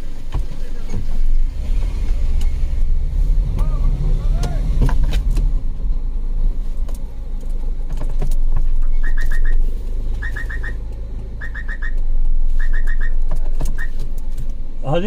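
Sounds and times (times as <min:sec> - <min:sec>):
car engine idling: 0:00.0 - 0:15.0
reverse horn chirping beeps: 0:08.9 - 0:13.2.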